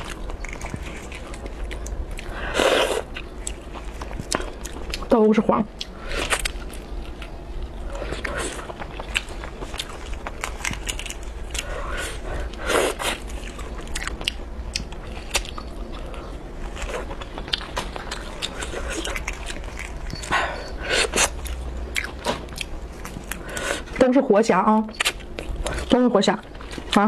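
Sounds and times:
wet chewing: 0.0s - 5.1s, 5.7s - 24.0s, 24.9s - 27.0s
crayfish shells cracking: 8.7s - 11.4s.

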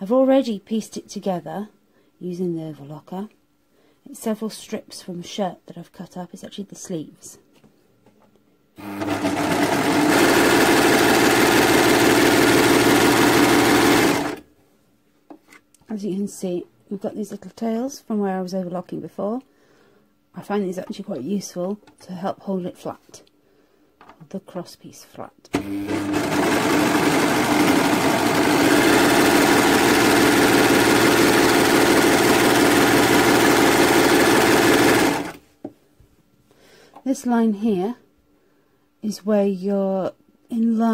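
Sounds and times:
overlocker stitching fabric: 8.8s - 14.4s, 25.6s - 35.4s.

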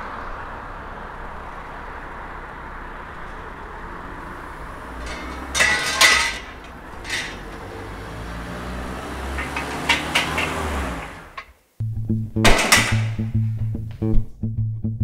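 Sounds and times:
metal poles clattering: 4.7s - 11.5s, 12.4s - 13.4s.

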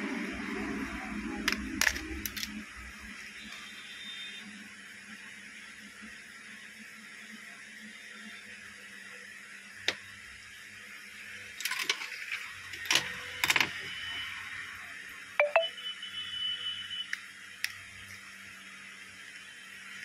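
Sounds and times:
plastic phone parts clicking on glass: 1.5s - 2.6s
thin high tone: 15.4s - 15.8s.

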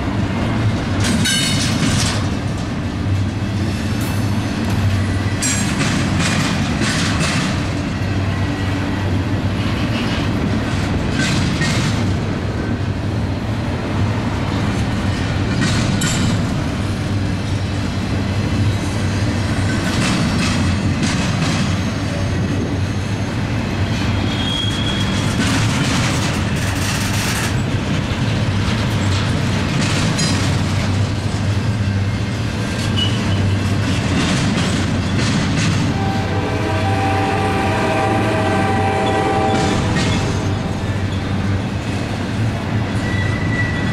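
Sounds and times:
freight train rumbling past: 0.0s - 43.9s
wheels clanking over track: 0.6s - 8.3s, 9.6s - 12.4s, 14.8s - 17.6s, 18.8s - 22.7s, 24.0s - 36.2s, 38.8s - 43.9s.

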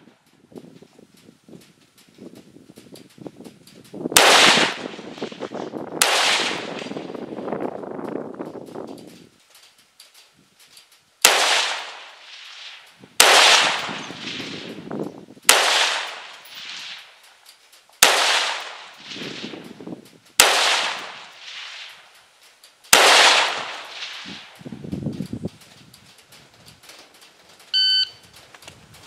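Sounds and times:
rifle shots echoing: 4.2s - 7.4s, 11.2s - 14.9s, 15.5s - 17.2s, 18.0s - 19.7s, 20.4s - 22.2s, 22.9s - 24.6s.

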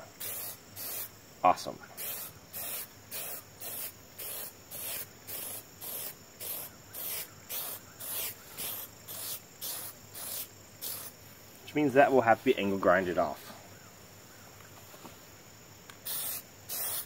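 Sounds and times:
aerosol can spraying: 0.2s - 1.1s, 2.0s - 11.2s, 16.0s - 17.0s.

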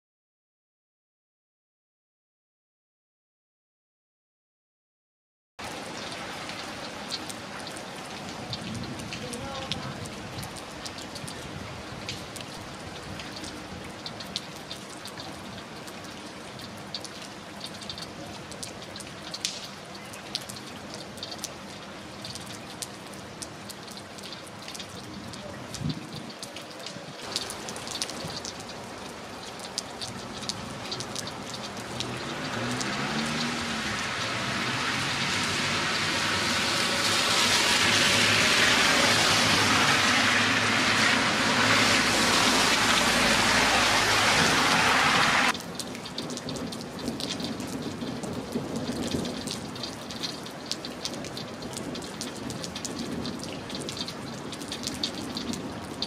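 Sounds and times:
water dripping: 5.6s - 11.4s, 12.0s - 36.0s, 42.6s - 56.0s
rain falling: 5.6s - 56.0s.

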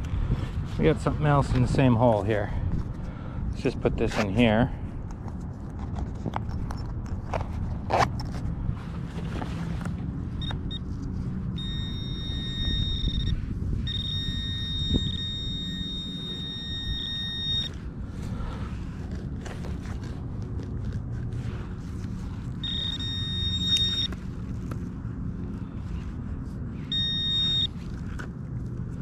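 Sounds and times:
high-pitched electronic detector tone: 11.5s - 17.8s, 22.6s - 24.2s, 26.8s - 27.8s.

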